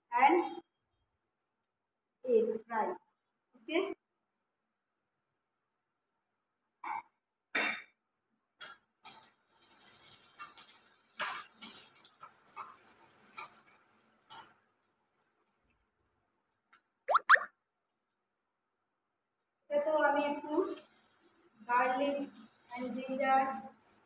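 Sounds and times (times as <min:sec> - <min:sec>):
metal spatula scraping a wok: 0:09.0 - 0:14.6.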